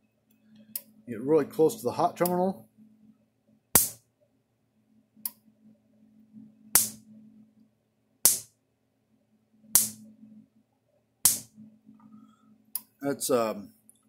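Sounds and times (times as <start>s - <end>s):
electric fence sparks cracking: 9.8s - 10.0s.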